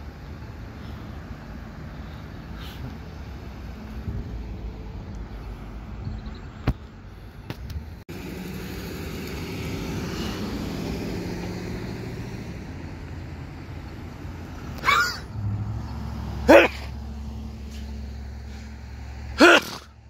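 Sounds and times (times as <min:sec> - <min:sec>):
pickup truck approaching: 0:00.0 - 0:20.0
road traffic: 0:00.0 - 0:20.0
vehicle passing: 0:08.1 - 0:20.0.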